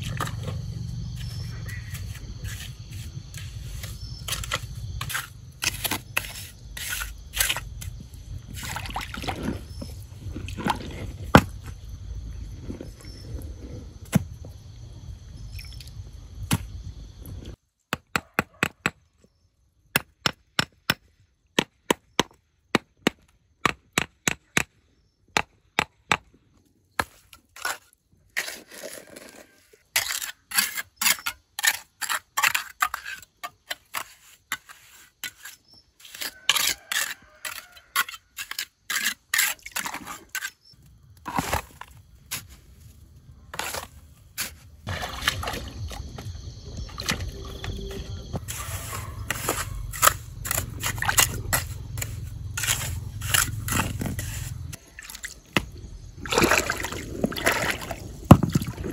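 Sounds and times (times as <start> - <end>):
mortar scraping: 0.0 - 14.3, 27.0 - 46.2, 47.7 - 54.9
rocks knocking: 58.1 - 58.9.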